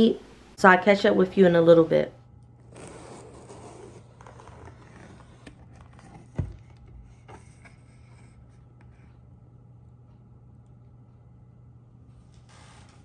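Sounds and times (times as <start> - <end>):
low hum: 0.0 - 13.0
cardboard box being handled: 2.6 - 8.0
box lid thump: 4.7 - 7.4.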